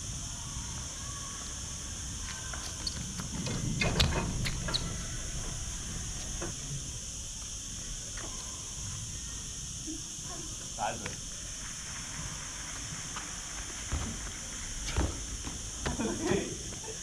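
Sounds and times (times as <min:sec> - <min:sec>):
shoe squeaks: 0:02.2 - 0:05.3
sneaker footfalls and scuffs: 0:13.1 - 0:16.1
landing thump: 0:13.9 - 0:16.2.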